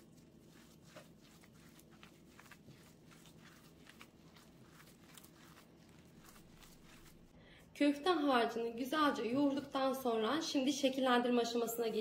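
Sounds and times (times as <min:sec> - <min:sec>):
hands kneading raw meat: 0:00.0 - 0:07.4.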